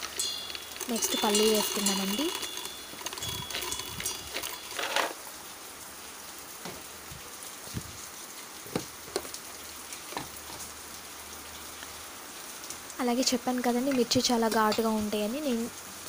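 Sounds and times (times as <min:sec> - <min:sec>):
peanuts clattering in steel jar: 0:00.0 - 0:05.2.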